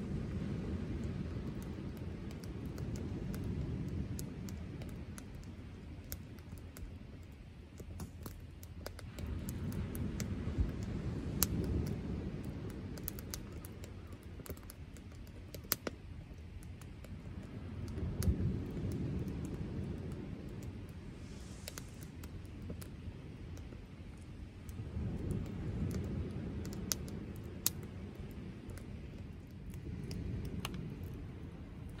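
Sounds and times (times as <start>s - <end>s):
wood fire crackling: 0.0s - 32.0s
low rumble: 17.0s - 32.0s.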